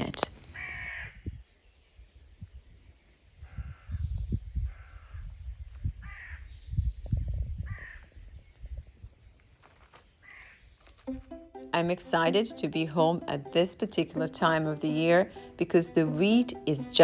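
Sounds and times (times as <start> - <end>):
wind gusting on microphone: 0.4 - 9.6
crow cawing: 0.6 - 1.2, 6.0 - 6.4.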